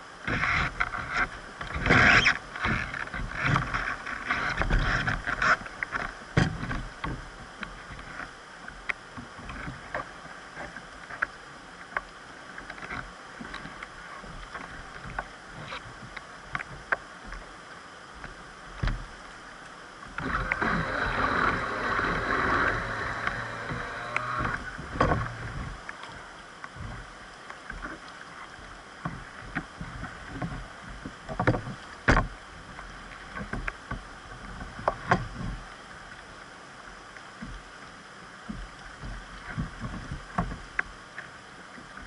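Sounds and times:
paddle knocks and splashes: 0.2 - 11.3, 18.2 - 19.1, 20.1 - 35.7, 38.4 - 41.0
river water rushing: 9.8 - 30.9.

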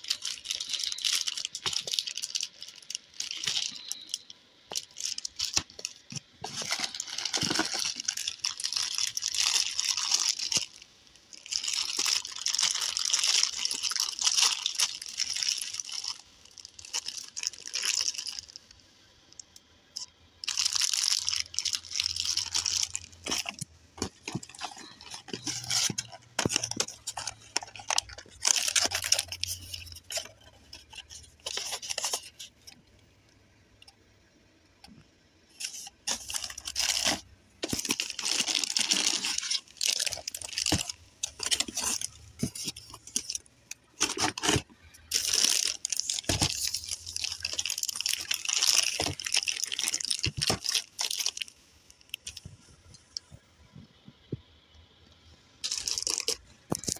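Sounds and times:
plastic bags crinkling: 0.0 - 32.8, 35.4 - 53.3, 55.6 - 56.9.

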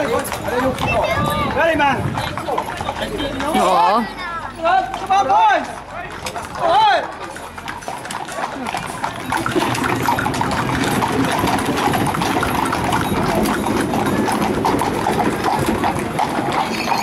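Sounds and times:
hooves clip-clopping on tarmac: 0.0 - 17.0.

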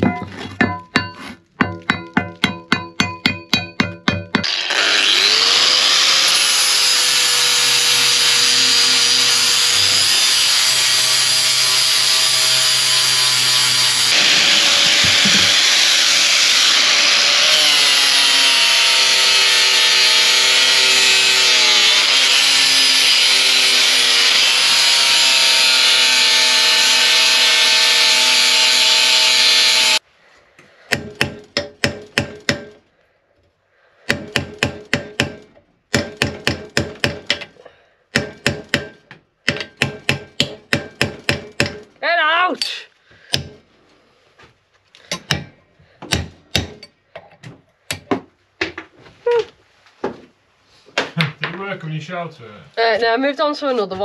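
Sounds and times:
angle grinder cutting steel: 3.3 - 30.0.

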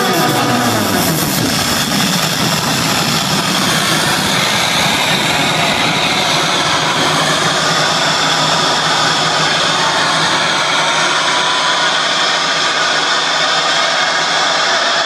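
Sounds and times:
electronic dance music: 0.0 - 15.0.

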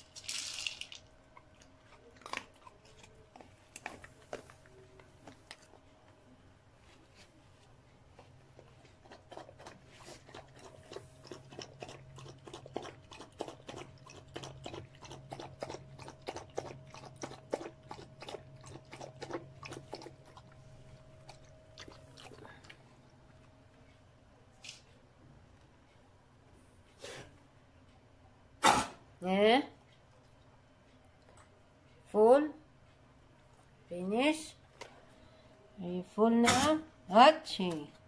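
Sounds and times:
dog crunching dry kibble: 0.0 - 5.8, 8.6 - 20.6.

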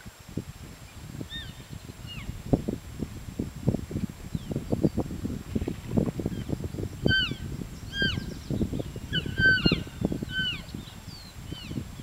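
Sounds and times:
elk mewing and chirping: 7.1 - 8.3, 9.1 - 10.7.

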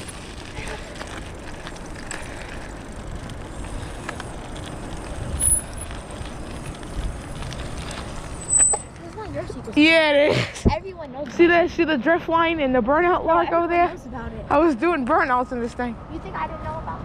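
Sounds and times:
wind rumbling on microphone: 0.0 - 9.8
tyres crunching on gravel: 0.0 - 10.0.

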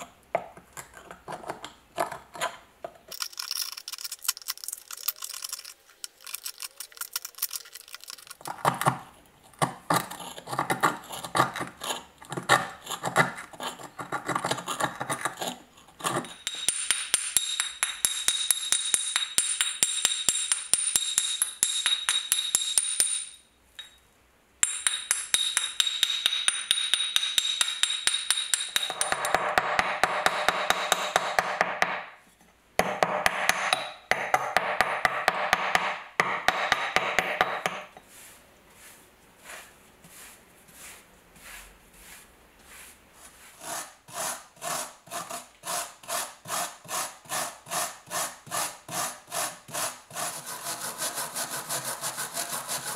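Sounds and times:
chisel scraping rust off metal: 9.5 - 23.2, 24.6 - 31.5, 43.6 - 52.9
hammer tapping chisel: 9.6 - 24.0, 24.6 - 32.1, 32.8 - 38.0.

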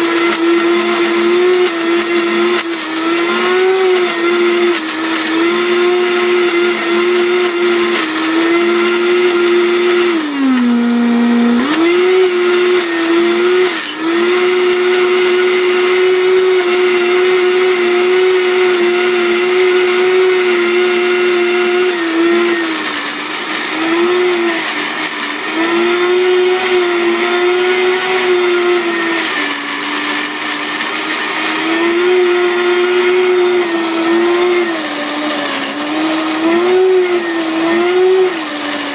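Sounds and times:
blender motor whining: 0.0 - 38.9.

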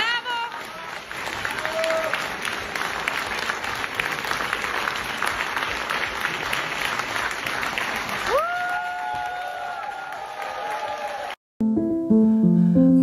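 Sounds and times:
audience clapping: 0.0 - 11.4.

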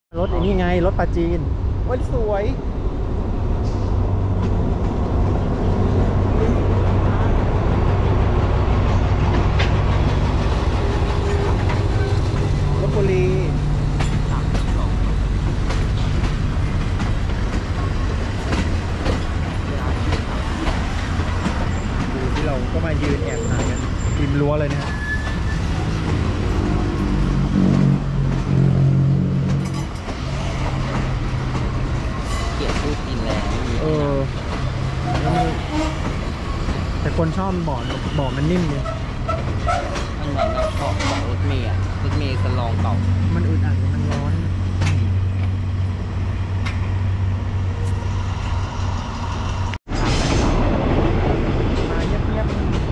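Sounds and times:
diesel locomotive engine drone: 0.2 - 52.9
coaches rolling on rails: 1.4 - 52.9.

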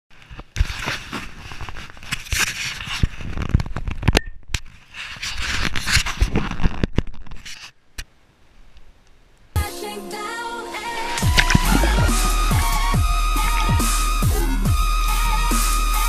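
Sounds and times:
rustling against microphone: 0.1 - 7.8.

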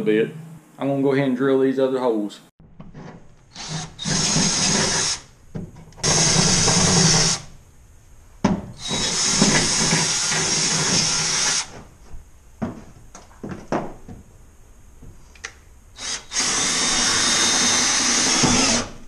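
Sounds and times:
power drill boring into steel: 3.5 - 5.3, 16.0 - 19.0.

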